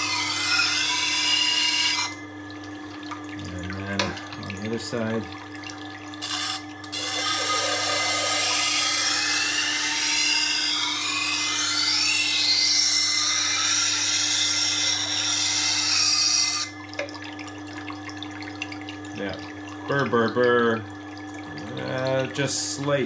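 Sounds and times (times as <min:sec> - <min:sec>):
knife grinding on sharpening wheel: 0:00.0 - 0:02.2, 0:06.2 - 0:16.7
motor hum: 0:00.0 - 0:23.0.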